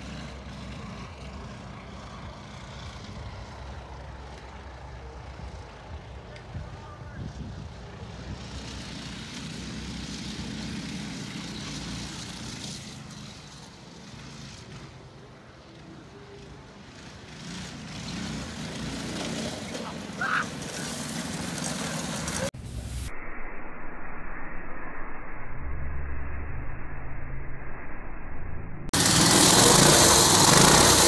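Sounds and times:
minibike engines running: 0.0s - 22.5s, 29.0s - 31.0s.

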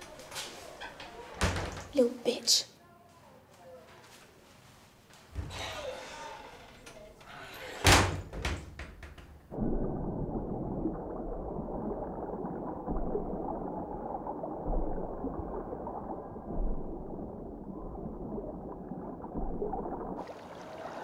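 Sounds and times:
dull low thumps: 9.5s - 20.2s
underwater bubbling churn: 9.5s - 21.0s.

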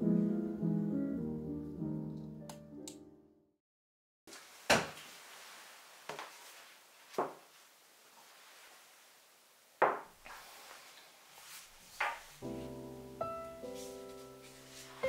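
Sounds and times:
objects knocking on wooden table: 9.8s - 10.1s.

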